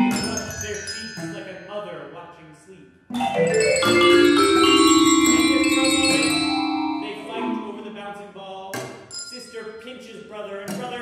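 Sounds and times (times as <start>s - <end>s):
vibraphone: 0.0s - 2.0s, 3.1s - 8.0s
small bells: 0.0s - 2.4s, 3.1s - 8.0s, 9.1s - 10.2s.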